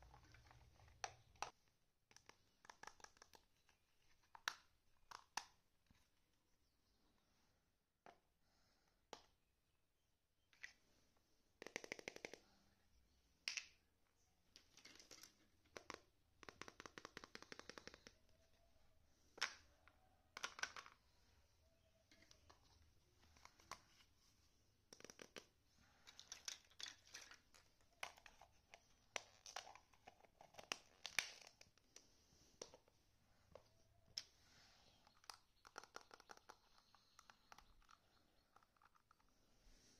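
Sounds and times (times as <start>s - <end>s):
plastic toys clattering on wood floor: 26.0s - 28.2s.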